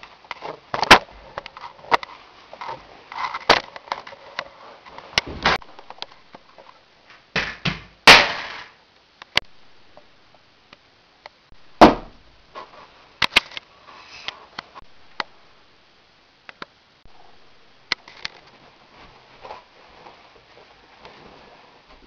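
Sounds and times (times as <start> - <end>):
sharp knocks and thuds: 5.2 - 5.6, 7.3 - 8.3, 11.8 - 12.3.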